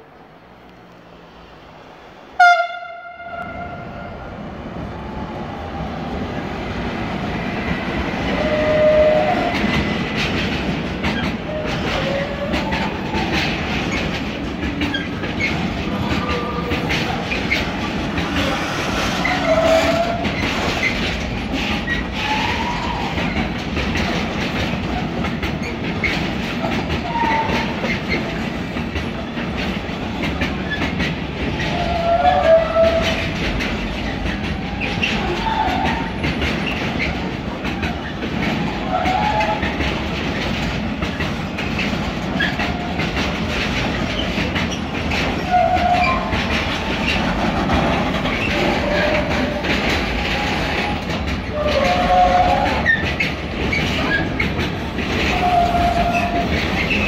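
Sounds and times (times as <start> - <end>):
train rumbling past: 0.0 - 57.0
locomotive horn blast: 2.4 - 4.2
wheels clickety-clack: 6.6 - 57.0
wheel squeals: 43.9 - 47.2, 50.2 - 54.5, 55.2 - 57.0.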